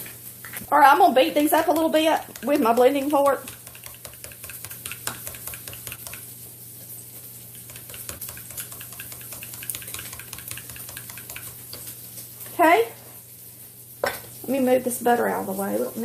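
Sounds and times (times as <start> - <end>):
fork beating eggs in glass: 1.2 - 6.3, 7.5 - 12.0.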